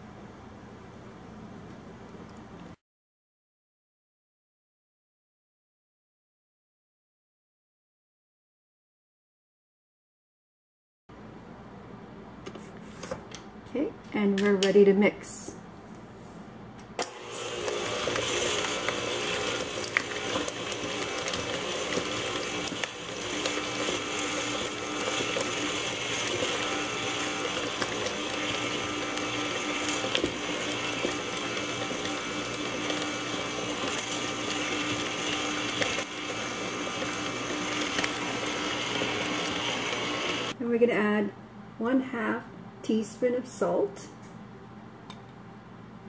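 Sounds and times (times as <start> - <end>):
stand mixer running: 17.0 - 40.6.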